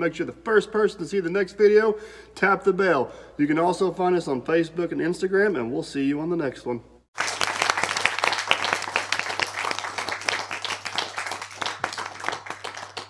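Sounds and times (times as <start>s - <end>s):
crowd applauding: 7.2s - 13.0s.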